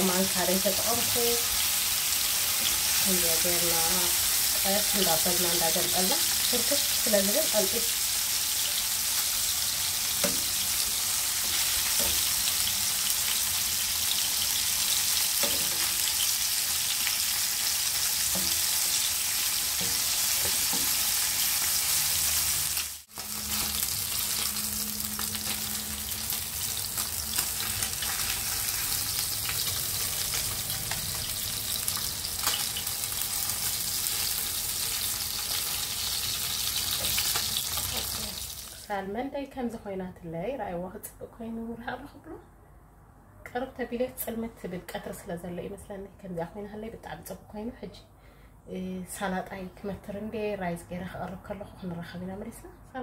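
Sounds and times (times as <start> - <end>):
fish sizzling in a frying pan: 0.0 - 38.8.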